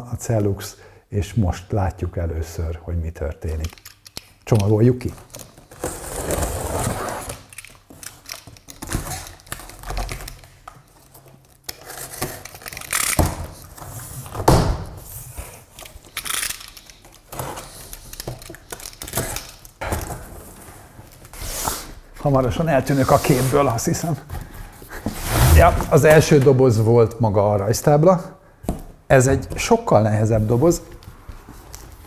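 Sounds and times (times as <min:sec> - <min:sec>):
cardboard scraping and rustling: 0:05.7 - 0:07.5, 0:22.9 - 0:26.5.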